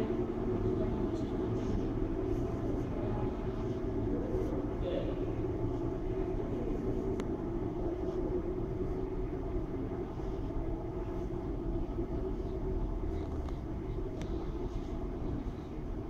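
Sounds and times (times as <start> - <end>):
low rumble with hum: 0.0 - 16.0.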